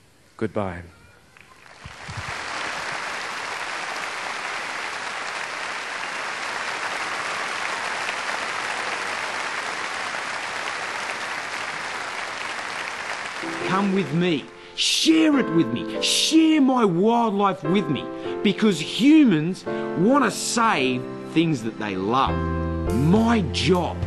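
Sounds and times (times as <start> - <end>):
stadium crowd applauding: 1.4 - 14.6.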